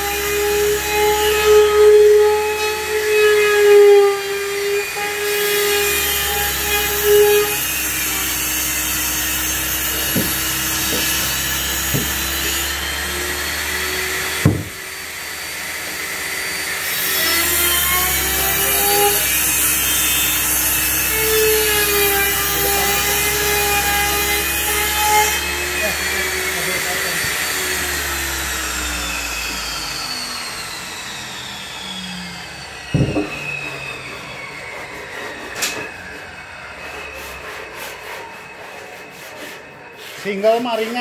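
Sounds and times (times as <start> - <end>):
electric router whining: 0.0 - 39.9
sharp knock: 14.4 - 14.8.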